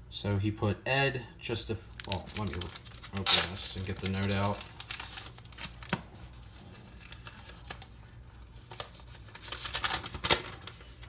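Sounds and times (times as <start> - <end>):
paper rustling: 2.0 - 11.0.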